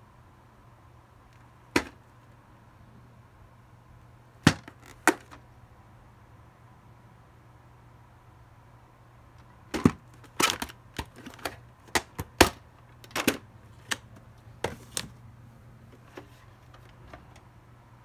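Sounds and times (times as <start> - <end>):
plastic case clicking and knocking: 1.8 - 2.0, 4.4 - 5.4, 9.7 - 15.1.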